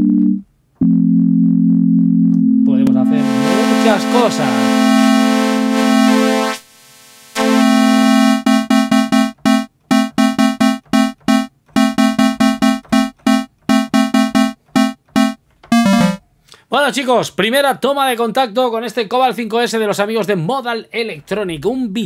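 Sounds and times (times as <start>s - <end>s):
bright buzzy synthesizer note: 2.7s - 16.2s.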